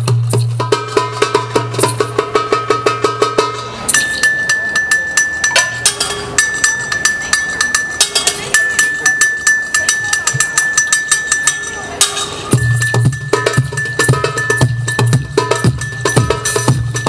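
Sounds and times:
hand drums playing fast beat: 0.0 - 17.0
ringing metal bell: 0.8 - 17.0.

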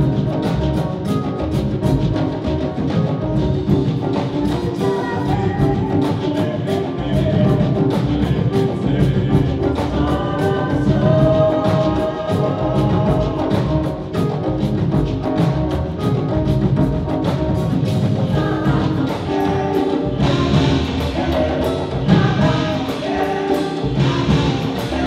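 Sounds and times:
drum ensemble playing: 0.0 - 25.0
group of voices singing: 4.0 - 14.7, 18.1 - 25.0.

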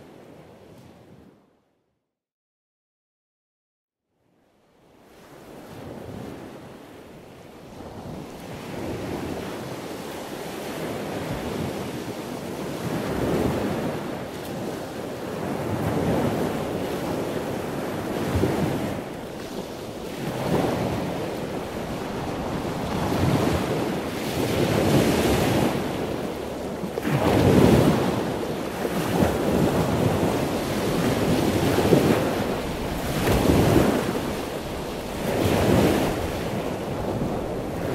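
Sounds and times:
sea waves washing in: 7.6 - 37.9.

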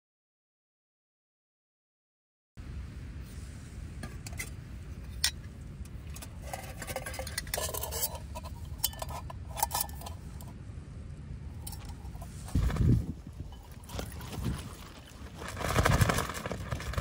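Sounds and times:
low steady rumble: 2.6 - 17.0
metal cookware clinking: 6.4 - 10.2.

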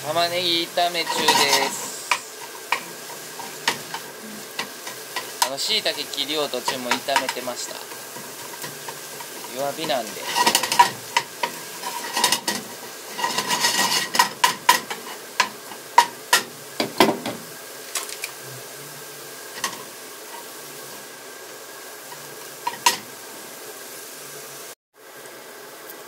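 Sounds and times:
spatula scraping frying pan: 0.0 - 17.5, 19.4 - 21.2, 21.9 - 23.2
onions sizzling: 0.0 - 26.0.

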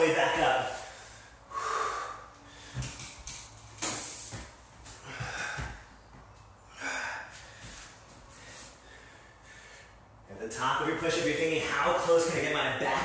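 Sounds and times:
man breathing hard: 0.7 - 10.3.

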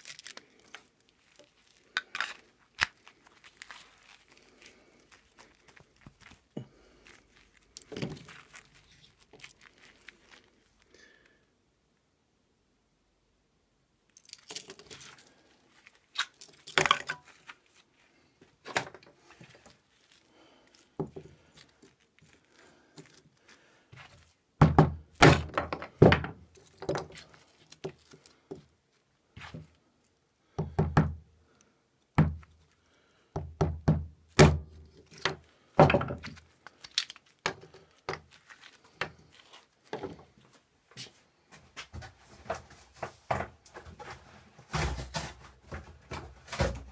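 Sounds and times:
wood splitting: 24.6 - 28.6, 33.5 - 39.3, 44.7 - 46.9.

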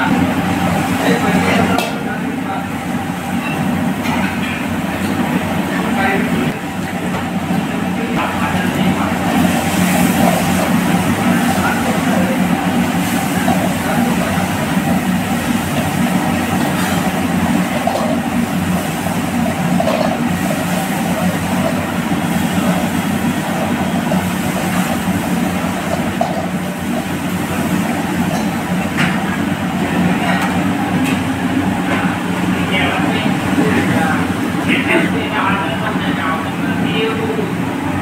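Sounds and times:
gas burner rushing: 0.0 - 38.0
vegetables sizzling in a wok: 9.1 - 30.7.

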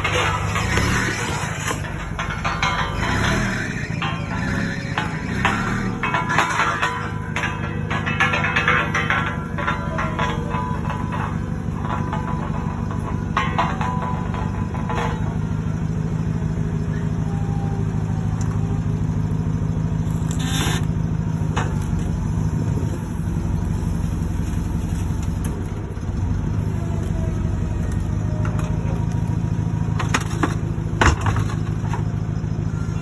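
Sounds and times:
knocks and rattles: 0.0 - 16.4, 28.3 - 32.3
forklift engine running: 0.0 - 33.0.

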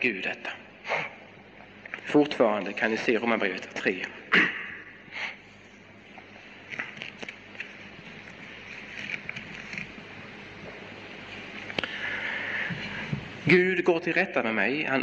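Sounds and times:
steady hiss: 0.0 - 15.0
paper pages rustling: 6.2 - 11.8.

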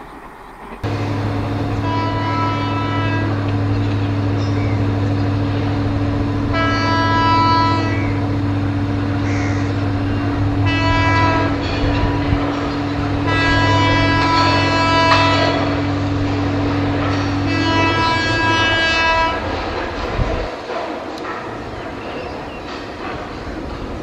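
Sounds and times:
locomotive air horn blasts: 0.8 - 4.2, 5.3 - 8.4, 9.9 - 19.8
steady low hum: 0.8 - 20.5.

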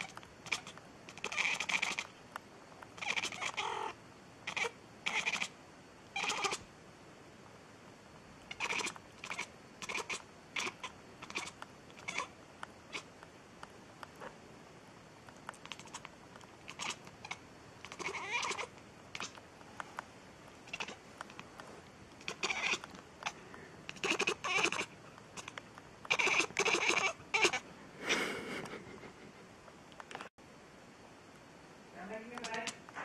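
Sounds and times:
cat meowing and chirping: 0.0 - 2.1, 3.0 - 5.6, 6.2 - 6.6, 8.5 - 13.1, 15.6 - 19.4, 20.6 - 21.0, 22.2 - 27.6.

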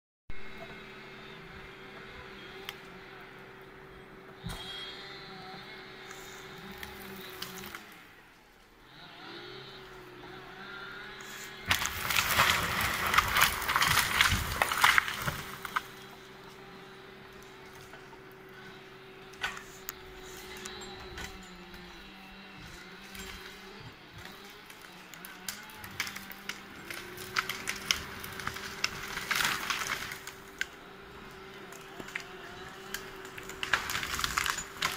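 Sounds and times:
machine hum: 0.3 - 34.9
branches snapping and wood scraping: 5.9 - 8.7, 11.2 - 34.9.

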